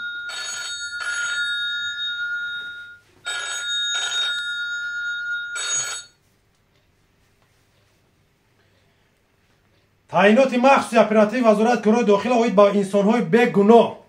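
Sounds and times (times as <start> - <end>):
phone ringtone telephone bell: 0.0 - 6.2.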